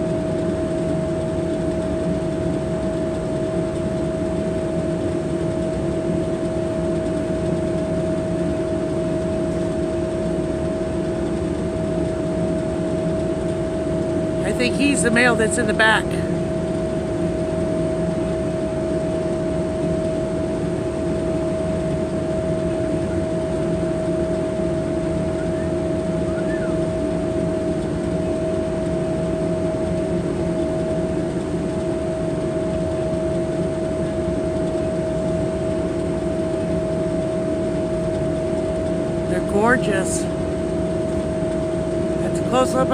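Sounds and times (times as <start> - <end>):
diesel engines droning: 14.4 - 16.3, 39.3 - 40.3.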